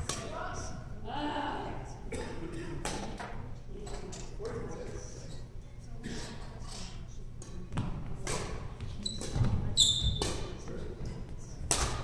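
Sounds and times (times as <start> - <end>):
shoe squeak: 9.0 - 10.2
racket hitting shuttlecock: 11.7 - 12.0.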